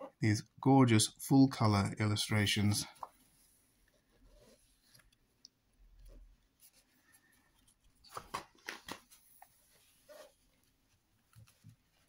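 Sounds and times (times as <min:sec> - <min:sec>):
book page turning: 0:06.0 - 0:12.0
paper rustling: 0:06.1 - 0:12.0.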